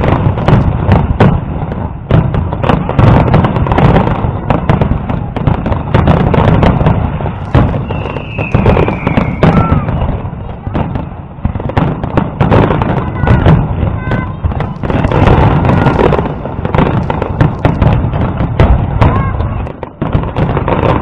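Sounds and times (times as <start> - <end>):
fireworks bangs and crackles: 0.0 - 21.0
falling firework whistle: 7.3 - 11.0.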